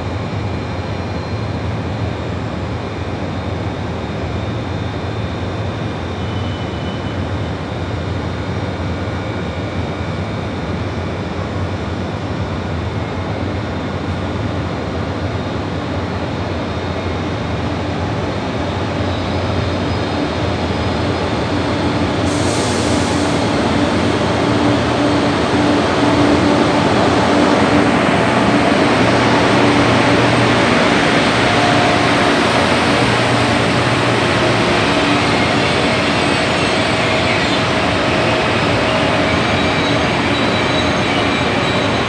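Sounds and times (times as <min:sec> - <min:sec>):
high-speed train approaching: 0:00.0 - 0:42.0
high hiss: 0:22.0 - 0:41.7.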